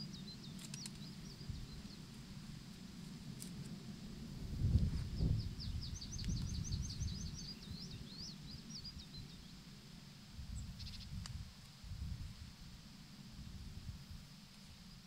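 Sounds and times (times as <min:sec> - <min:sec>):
songbird singing: 0:00.0 - 0:03.5, 0:04.3 - 0:12.6
steady low rumble: 0:00.0 - 0:15.0
faint clicks: 0:00.6 - 0:01.1.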